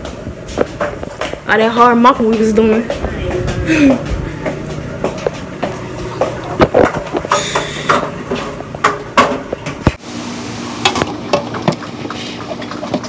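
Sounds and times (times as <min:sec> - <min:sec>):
dishes knocking and clinking: 0:04.4 - 0:10.0.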